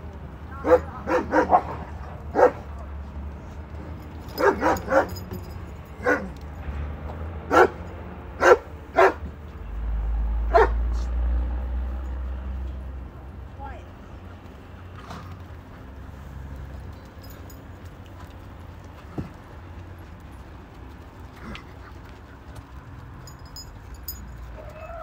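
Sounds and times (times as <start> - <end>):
dog barking: 0.6 - 2.7, 4.3 - 5.3, 6.0 - 6.4, 7.5 - 7.8, 8.4 - 9.3, 10.5 - 11.0.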